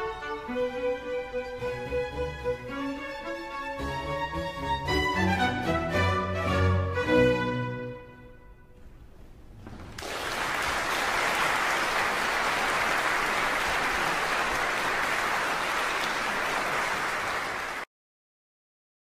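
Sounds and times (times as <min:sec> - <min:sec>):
audience applauding: 0:09.8 - 0:17.9.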